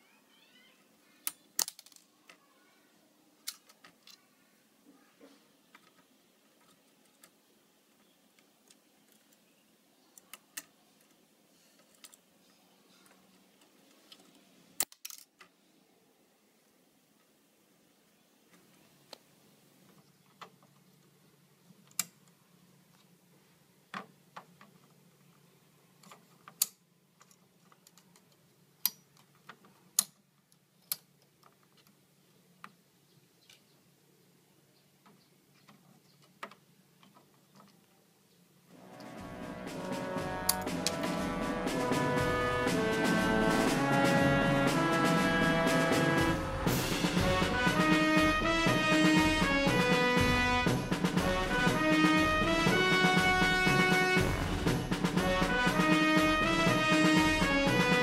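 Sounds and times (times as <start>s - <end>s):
plastic toy bricks clicking: 1.2s - 2.4s, 3.4s - 4.2s, 13.6s - 15.5s
toy bricks clattering: 1.4s - 2.4s, 14.0s - 15.4s.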